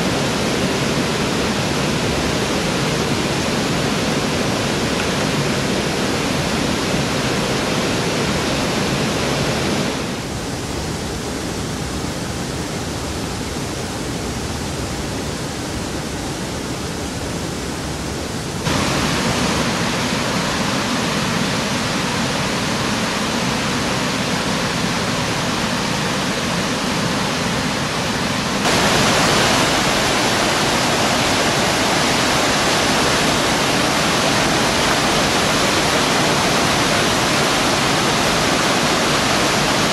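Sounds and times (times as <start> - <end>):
brook rushing over rocks: 28.6 - 39.9.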